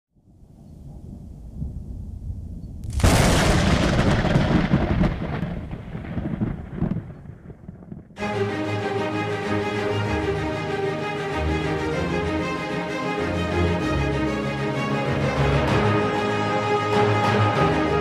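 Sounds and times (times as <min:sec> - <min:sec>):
thunder rumble and crack: 0:00.7 - 0:08.2
music: 0:08.2 - 0:18.0.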